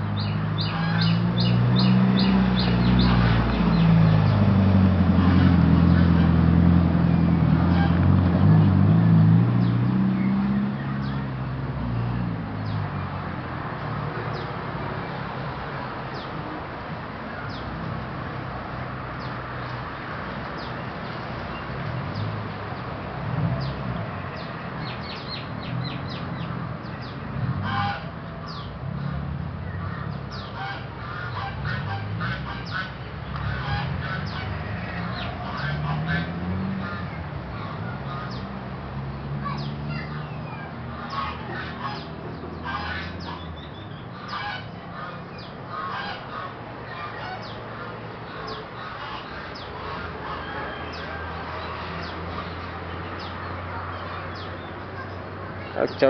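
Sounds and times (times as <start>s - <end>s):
birds chirping and calling: 0.0s - 4.5s, 23.6s - 56.0s
low traffic hum: 0.0s - 56.0s
motor vehicle passing loudly: 0.0s - 56.0s.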